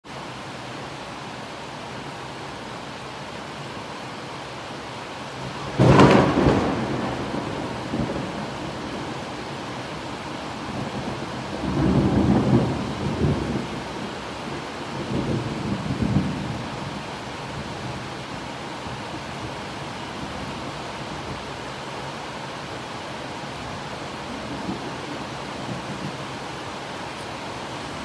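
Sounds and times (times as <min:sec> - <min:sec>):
rain falling: 0:00.0 - 0:28.0
rumbling thunder: 0:05.5 - 0:09.5, 0:10.4 - 0:14.2, 0:14.9 - 0:18.0
thunderclap: 0:05.6 - 0:09.1.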